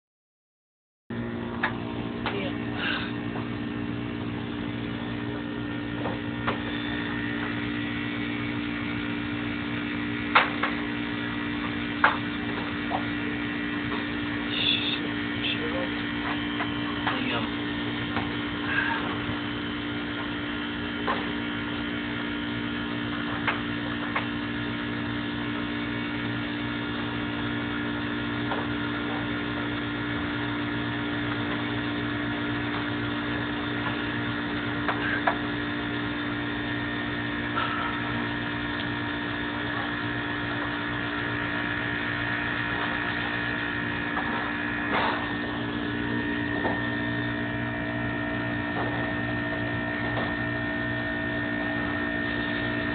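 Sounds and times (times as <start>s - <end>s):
machine hum: 1.1s - 52.9s
faint high whine: 12.0s - 20.1s.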